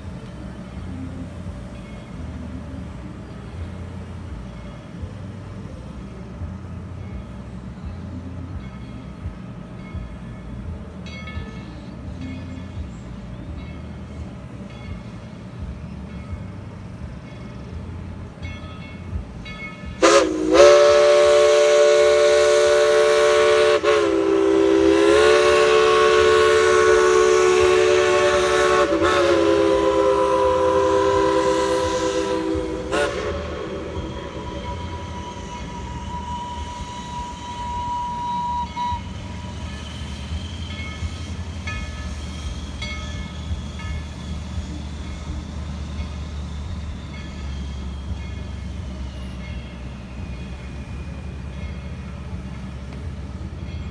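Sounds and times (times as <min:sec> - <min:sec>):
locomotive chime whistle: 0:00.0 - 0:53.9.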